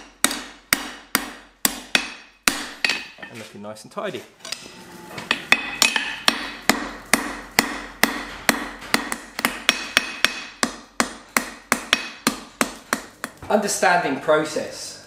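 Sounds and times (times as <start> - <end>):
hammer striking steel on anvil: 0.0 - 3.4, 5.3 - 13.4.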